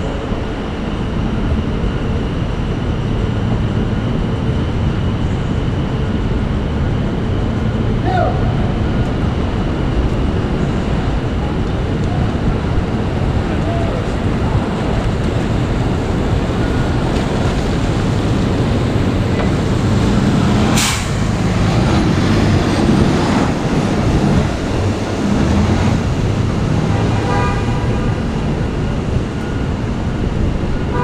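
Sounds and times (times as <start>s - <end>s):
vehicles passing on wet road: 9.6s - 31.0s
short sharp hiss: 20.8s - 21.2s.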